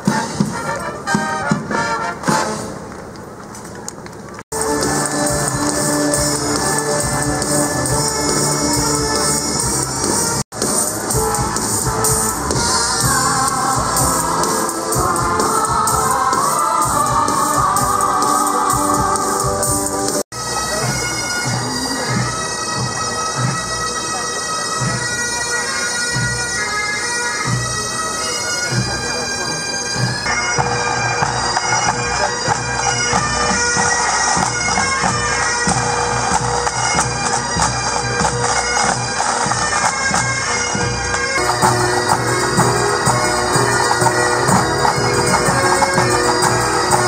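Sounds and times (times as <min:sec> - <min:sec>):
bagpipes playing: 0:04.6 - 0:47.0
bass drum beats: 0:41.4 - 0:47.0.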